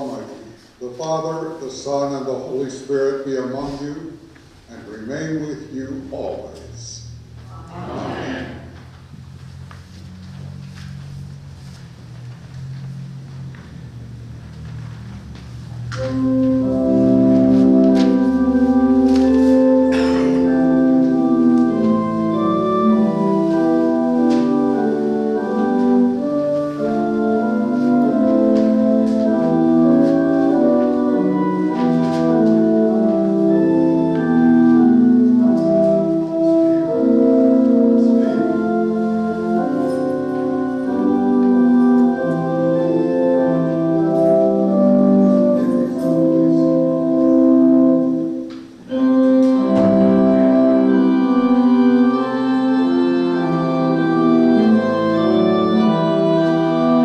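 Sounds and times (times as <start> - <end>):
church organ chords: 0.0 - 57.0.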